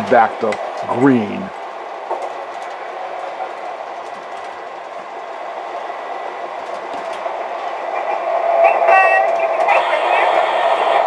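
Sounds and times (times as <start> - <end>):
faint clicks: 6.5 - 7.7.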